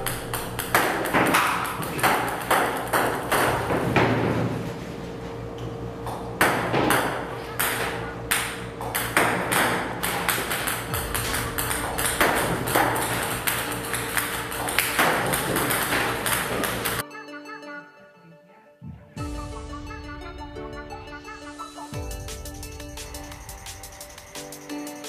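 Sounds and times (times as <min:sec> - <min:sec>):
steady low hum: 0:00.0 - 0:17.0, 0:22.0 - 0:24.5.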